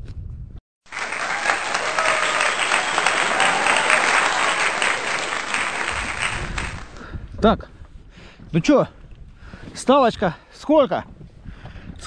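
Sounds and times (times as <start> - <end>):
crowd applause: 0.9 - 7.0.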